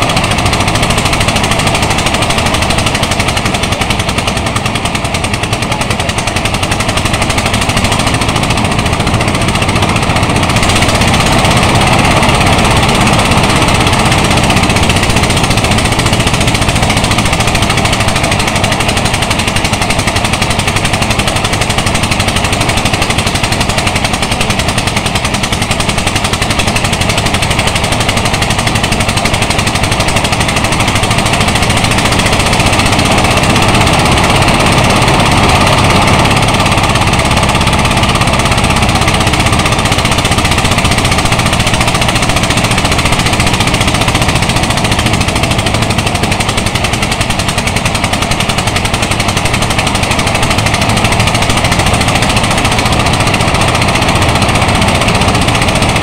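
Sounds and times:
rice thresher clattering: 0.0 - 56.0.

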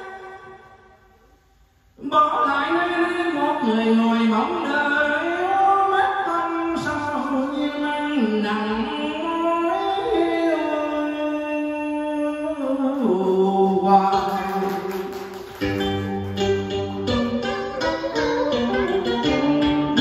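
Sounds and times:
man singing long sliding notes: 2.0 - 15.1
plucked lute and guitar: 15.6 - 20.0.

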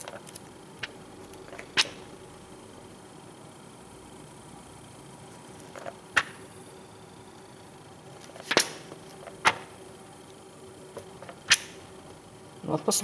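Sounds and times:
catalogue pages flipping: 8.2 - 9.6.

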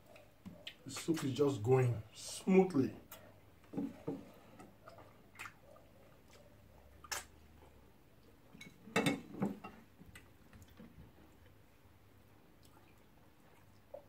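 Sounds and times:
mouth smacks and clicks: 4.8 - 5.7, 7.0 - 7.4.

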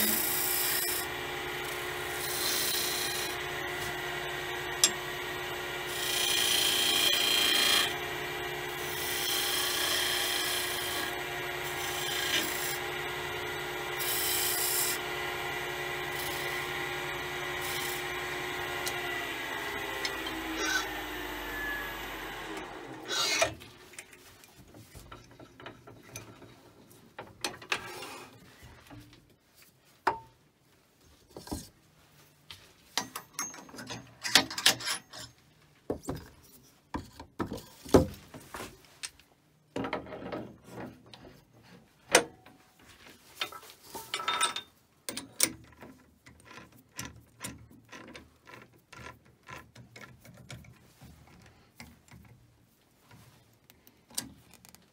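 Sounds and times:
wood lathe running: 0.0 - 23.5
knocks and clicks of wood and metal: 30.0 - 30.4, 32.9 - 35.2, 35.9 - 38.5, 39.7 - 41.2, 42.1 - 42.6.

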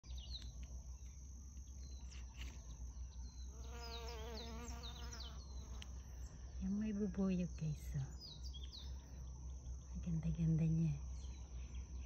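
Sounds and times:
high insect drone: 0.1 - 12.0
bee buzzing: 3.5 - 6.3.

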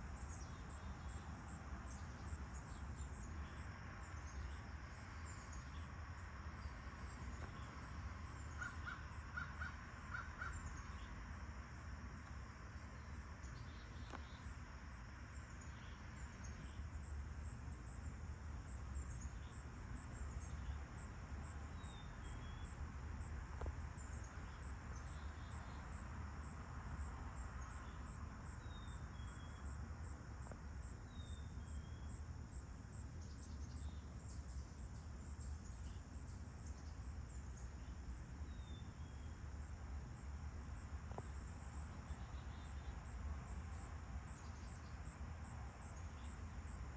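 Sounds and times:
crickets trilling: 0.0 - 46.9
bird chirp: 31.1 - 32.2.

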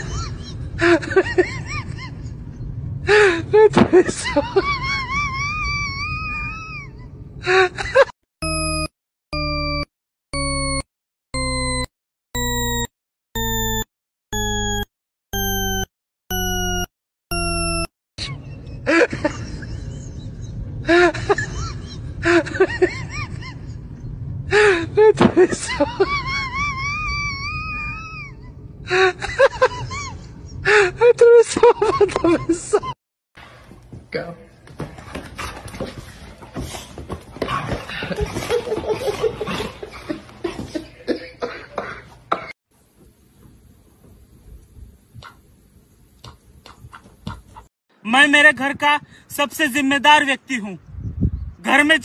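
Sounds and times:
harsh electronic beeps: 8.4 - 17.9.

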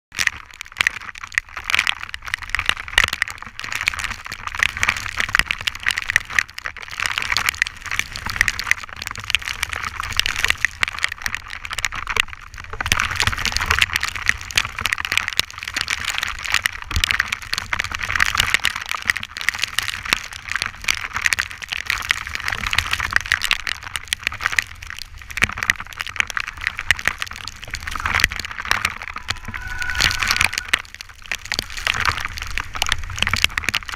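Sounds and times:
wheels rolling on wet asphalt: 0.2 - 33.9
wind rumble: 25.0 - 33.9.

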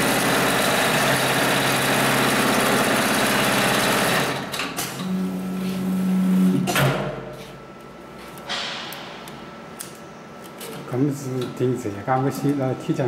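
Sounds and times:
low machine hum: 4.2 - 13.0.

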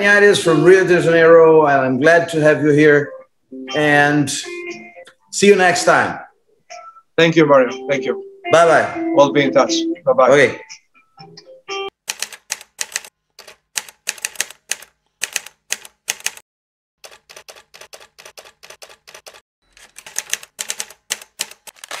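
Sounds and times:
typewriter key clacks: 12.1 - 16.4, 17.4 - 22.0.

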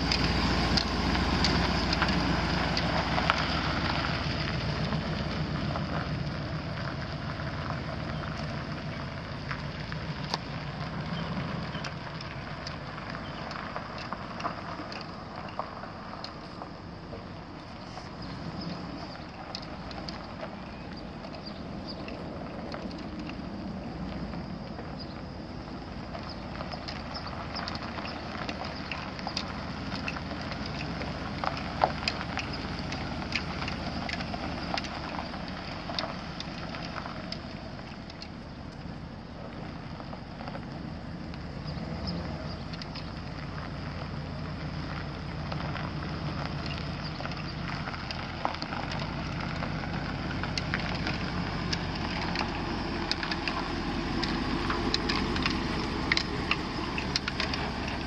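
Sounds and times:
sharp clicks and crackles: 0.0 - 58.0
truck engine idling: 0.0 - 58.0.

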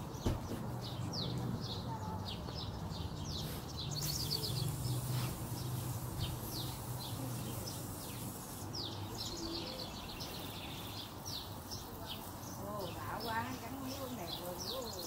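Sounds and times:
birds chirping: 0.0 - 15.0
high hiss: 3.4 - 15.0.

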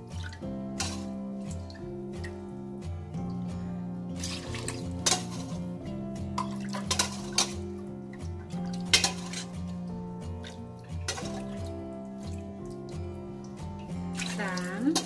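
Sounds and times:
background music: 0.0 - 15.0
ladle clinking against stockpot: 0.8 - 1.1, 5.0 - 5.6, 6.4 - 7.6, 8.8 - 9.6.

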